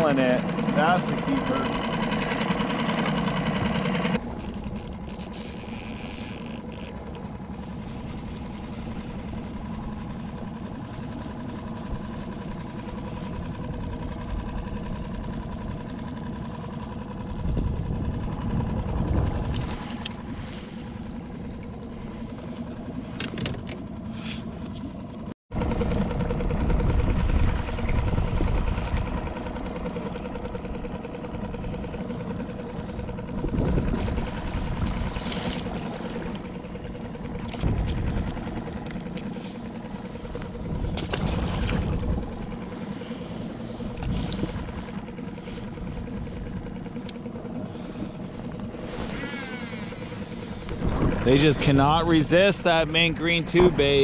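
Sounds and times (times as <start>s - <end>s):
outboard motor idling: 0.0s - 54.0s
water lapping: 0.0s - 54.0s
wind on microphone: 17.4s - 19.8s, 26.5s - 29.2s, 33.3s - 35.2s, 40.6s - 42.5s, 50.6s - 52.2s.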